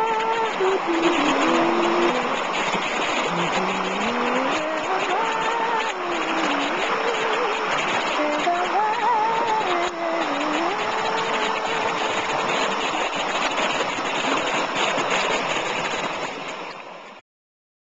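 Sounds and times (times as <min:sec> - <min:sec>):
river water rushing: 0:00.0 - 0:17.2.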